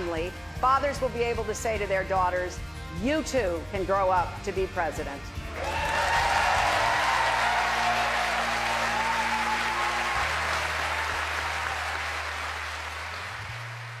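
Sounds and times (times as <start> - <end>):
audience applauding: 5.5 - 14.0.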